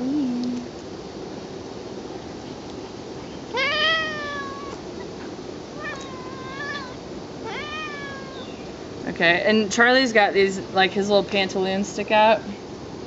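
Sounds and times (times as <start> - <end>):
cat meowing: 3.5 - 4.8, 5.8 - 8.6.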